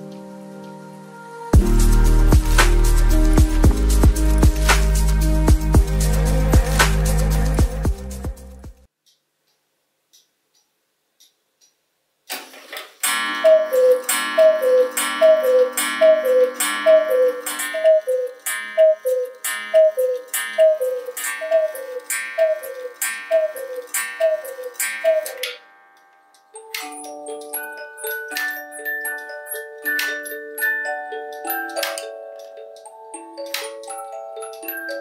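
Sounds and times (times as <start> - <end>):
cuckoo clock call: 13.0 - 35.0.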